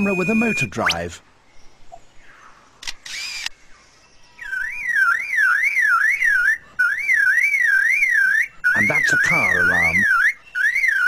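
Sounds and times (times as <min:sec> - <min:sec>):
bird mimicking car alarm siren: 0:00.0 - 0:01.1, 0:04.3 - 0:11.0
bird mimicking camera click and whir: 0:02.8 - 0:03.6.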